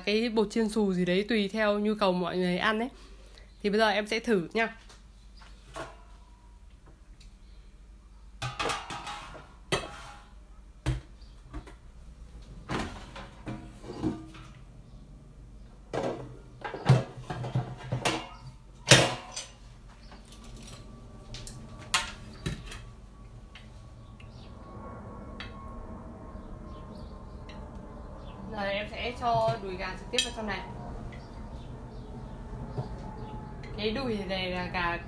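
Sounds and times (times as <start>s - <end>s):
dishes knocking and clattering: 8.4s - 10.2s, 15.9s - 19.5s.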